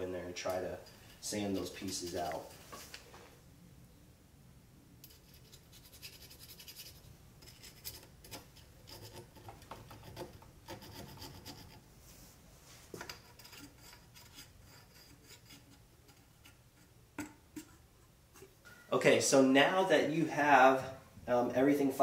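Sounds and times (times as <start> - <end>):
file scraping inside metal tube: 5.2 - 11.8, 13.1 - 18.6.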